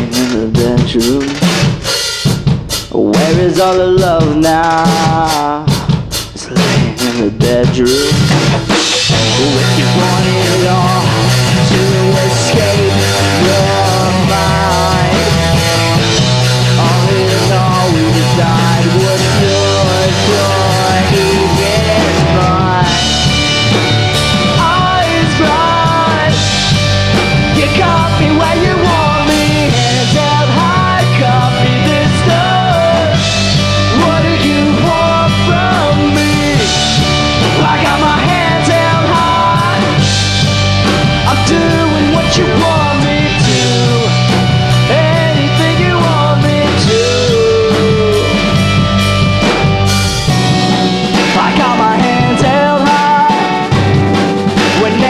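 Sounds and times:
bending lead melody: 0:00.0 - 0:55.0
live pop-rock band playing: 0:00.0 - 0:55.0.

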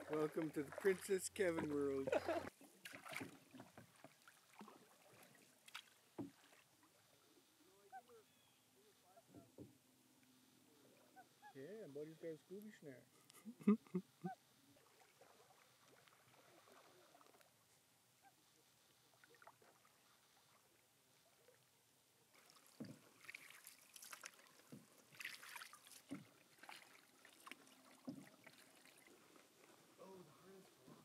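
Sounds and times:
paddle splashing in water: 0:00.0 - 0:08.4, 0:14.6 - 0:31.0.

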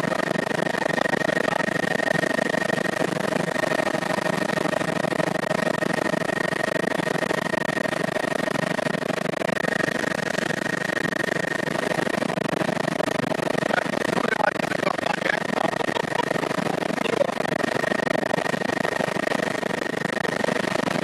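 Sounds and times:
helicopter engine and rotor: 0:00.0 - 0:21.0
high whine: 0:08.8 - 0:21.0.

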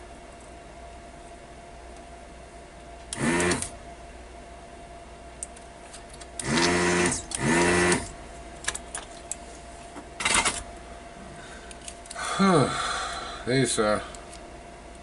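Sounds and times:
faint steady whine: 0:00.0 - 0:15.0
small electric motor buzzing: 0:03.1 - 0:03.8, 0:06.4 - 0:08.2.

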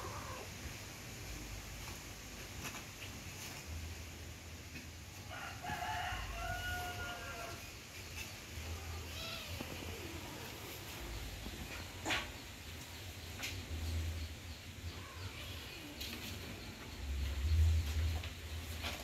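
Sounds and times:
rooster crowing: 0:05.3 - 0:07.7.

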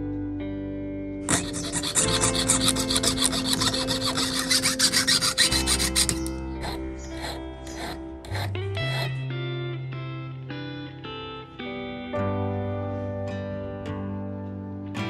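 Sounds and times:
guitar music: 0:00.0 - 0:15.0
saw rasping through metal coin: 0:01.3 - 0:09.1.

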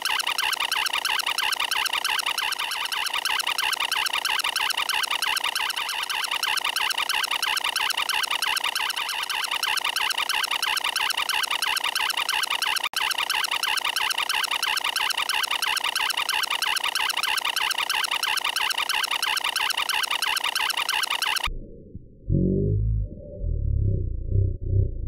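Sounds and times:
electronic glitch warbling tone: 0:00.0 - 0:21.5.

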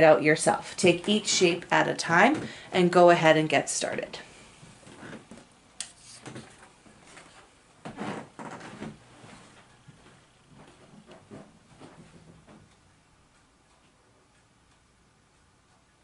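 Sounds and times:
handling rustles and light knocks: 0:04.6 - 0:12.8.

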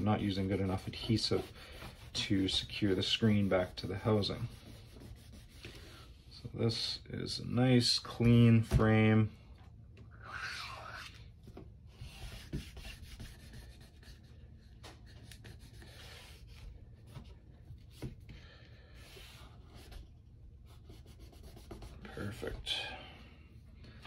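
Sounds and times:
cloth wiping metal frame: 0:00.0 - 0:05.7.

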